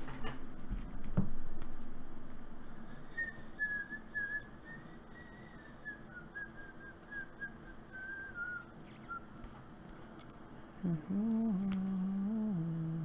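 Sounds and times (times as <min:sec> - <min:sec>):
person whistling a tune: 0:03.1 - 0:09.3.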